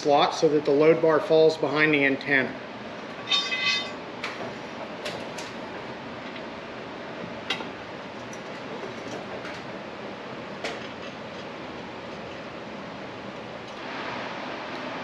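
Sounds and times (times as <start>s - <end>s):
short metallic ring: 3.2s - 4.0s.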